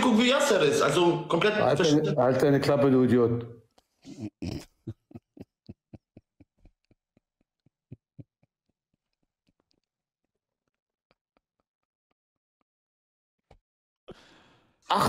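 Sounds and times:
man laughing: 4.0 - 8.6.

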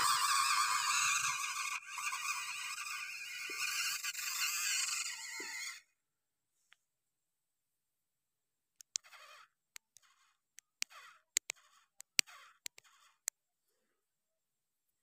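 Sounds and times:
toy tractor squeaky scraping: 0.0 - 5.9, 8.8 - 13.3
sharp clicks: 8.8 - 13.4.

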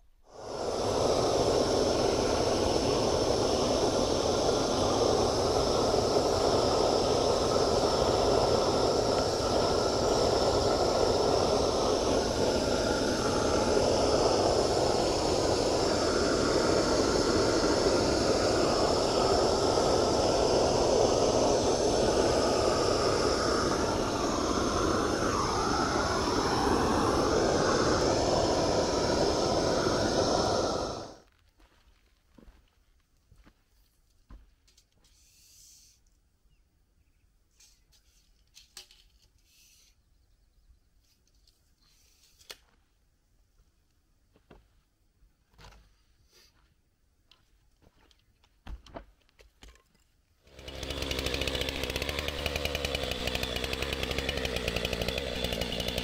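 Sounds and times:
propane torch flame rushing: 0.2 - 31.3, 50.5 - 56.0.

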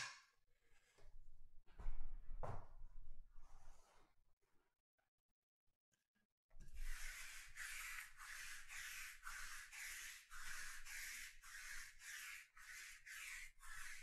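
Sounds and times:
lint roller rubbing on cloth: 6.6 - 14.0.

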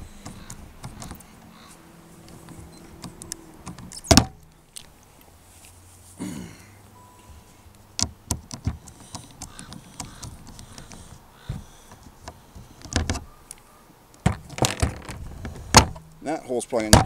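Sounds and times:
tools clicking and knocking: 0.0 - 1.5, 8.0 - 13.2.

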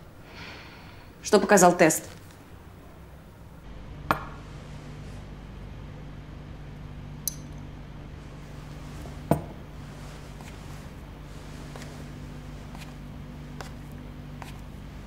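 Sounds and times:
steady low hum: 0.0 - 15.0
tableware knocking: 4.1 - 4.4, 9.3 - 9.6
high ringing clink: 7.2 - 7.6.

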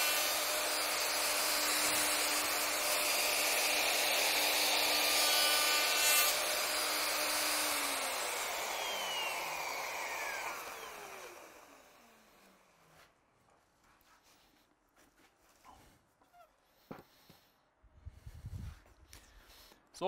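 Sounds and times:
router milling timber: 0.0 - 12.8
motor winding down: 7.1 - 12.3.

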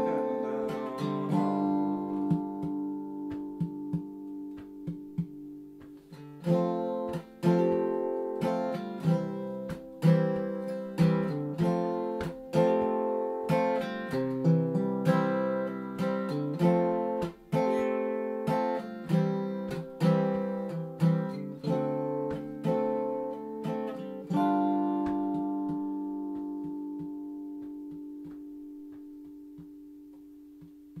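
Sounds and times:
acoustic guitar strumming: 0.0 - 31.0.

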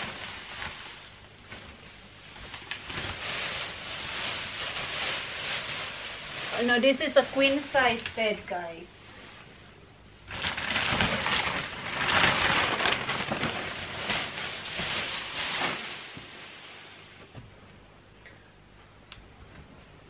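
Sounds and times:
plastic wrapping crinkling: 0.0 - 8.7, 10.2 - 17.2.

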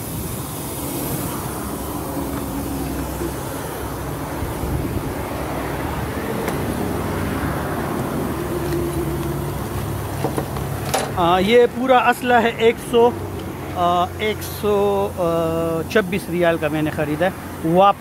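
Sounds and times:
truck engine idling: 0.0 - 17.8.

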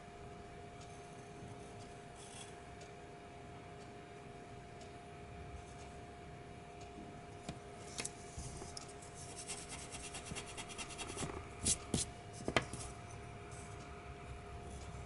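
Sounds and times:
eraser rubbing paper: 9.2 - 12.1
pencil scratching on paper: 9.2 - 12.1.

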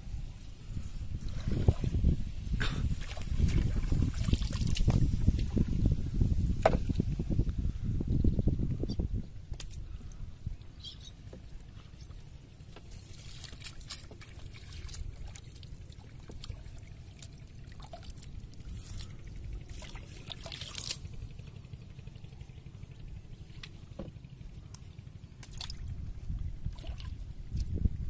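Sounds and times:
low steady rumble: 0.0 - 28.0
small splashes: 2.8 - 5.8, 11.6 - 22.7, 23.4 - 27.8.

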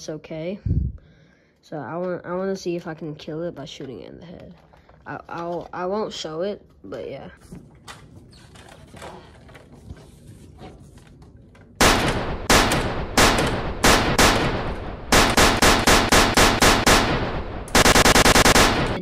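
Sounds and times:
gunshots: 11.8 - 19.0.

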